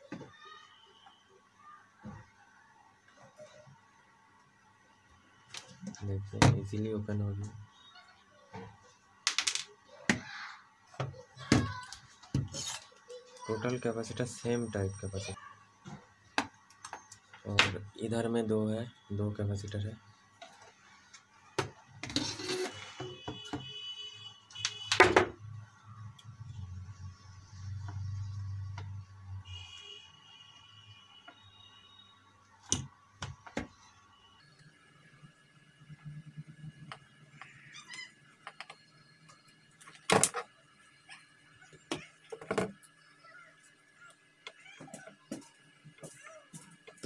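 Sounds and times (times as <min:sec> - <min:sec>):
knocks and clatters on workbench: 0:25.0 - 0:25.4.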